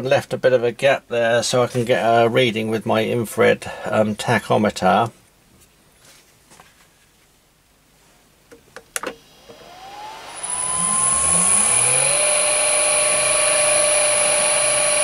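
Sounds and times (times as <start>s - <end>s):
electric motor whine: 9.0s - 15.0s.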